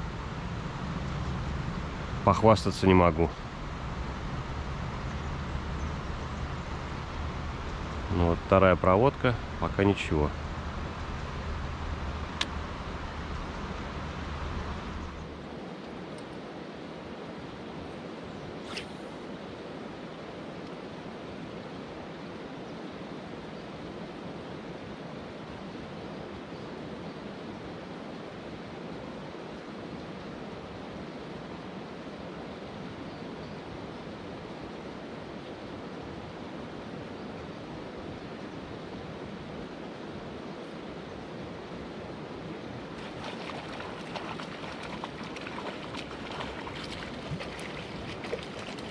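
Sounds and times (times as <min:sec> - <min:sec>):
river running over stones: 0:42.2 - 0:48.9.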